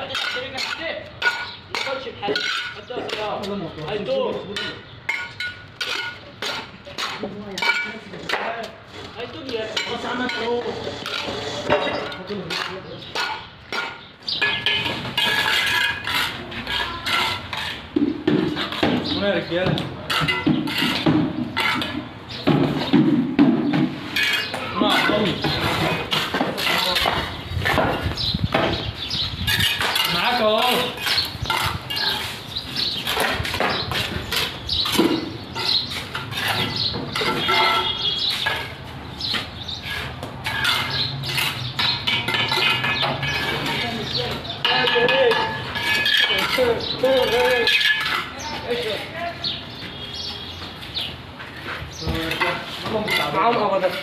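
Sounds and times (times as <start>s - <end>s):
trowel clinking on bricks: 0.0s - 8.6s, 9.4s - 23.0s, 24.1s - 28.8s, 29.5s - 48.8s, 52.2s - 54.0s
shovel scraping wet mortar: 8.2s - 18.9s, 20.1s - 22.1s, 24.0s - 28.1s, 29.4s - 49.1s
bricks knocking: 11.1s - 28.9s.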